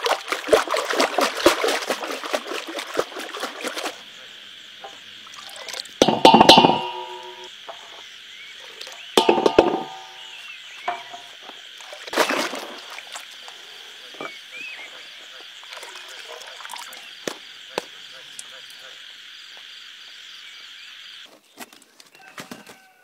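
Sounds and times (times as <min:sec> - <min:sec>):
frogs croaking: 0:00.0 - 0:21.3
metal bowl ringing: 0:06.0 - 0:07.5, 0:09.2 - 0:11.3.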